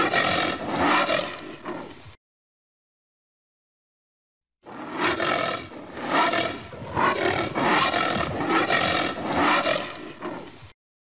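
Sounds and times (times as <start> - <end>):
anteater growling: 4.7 - 10.6.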